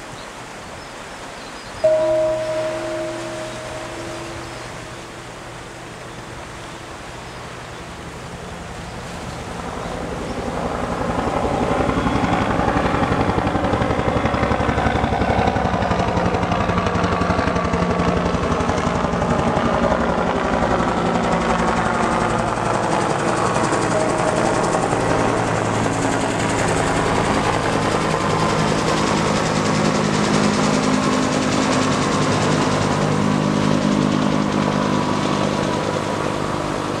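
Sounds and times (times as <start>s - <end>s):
helicopter rotor beating: 9.5s - 37.0s.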